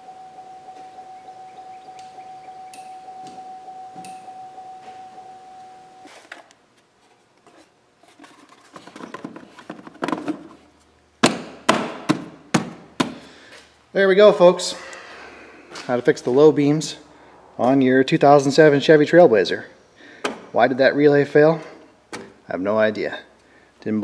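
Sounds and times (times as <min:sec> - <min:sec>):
faint steady tone: 0:00.0 - 0:06.5
plastic cover being handled: 0:06.0 - 0:10.8.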